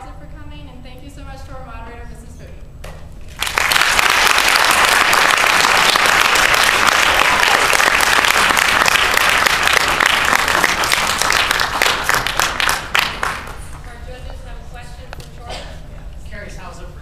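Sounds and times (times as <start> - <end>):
audience applauding: 3.3 - 13.7.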